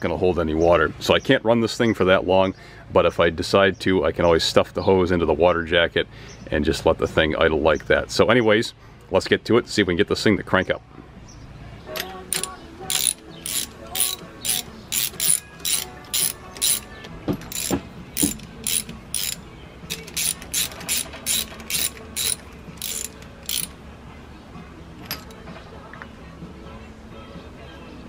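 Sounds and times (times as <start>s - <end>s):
socket ratchet clicking: 12.0s - 23.8s.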